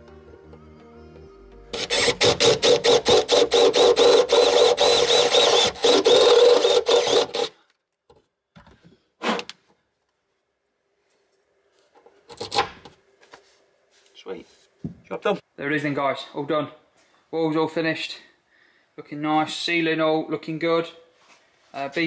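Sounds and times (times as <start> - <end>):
cordless drill drilling: 1.8 - 7.6.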